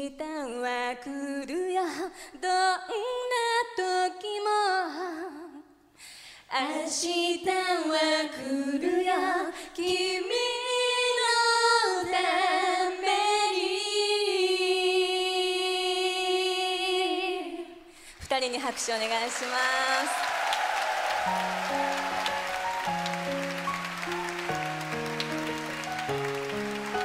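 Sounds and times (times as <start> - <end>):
women singing pop song: 0.0 - 5.7, 6.5 - 17.9.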